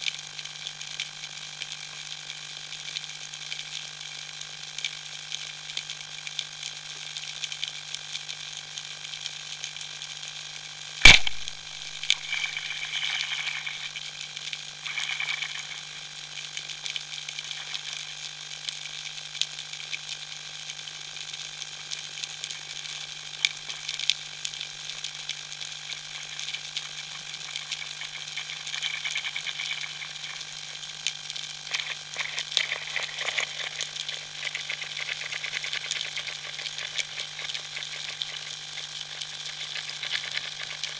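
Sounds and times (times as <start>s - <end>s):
low hum: 11.0s - 14.1s
underwater crackling clicks: 11.0s - 18.2s, 23.4s - 40.9s
sharp loud knock: 11.1s - 11.5s.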